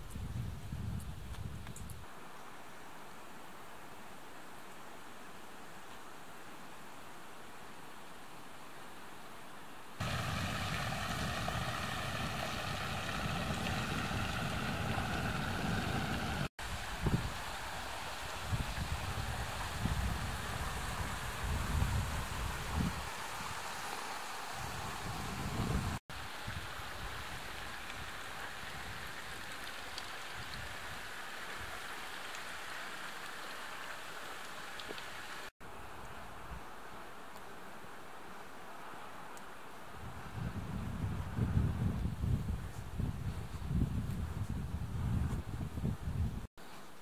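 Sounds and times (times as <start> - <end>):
steady outdoor hiss: 0.0 - 47.0
water pouring into channel: 10.0 - 16.5.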